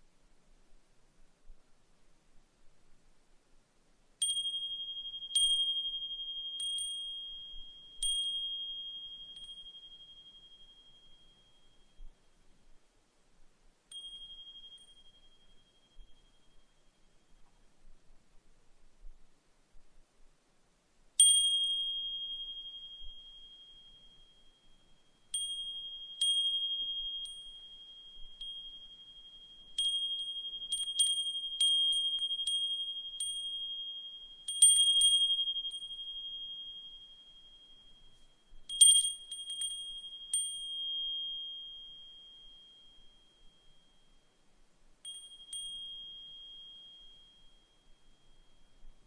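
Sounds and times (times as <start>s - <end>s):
brass wind chime ringing: 13.9s - 17.3s, 21.2s - 44.4s, 45.0s - 49.0s.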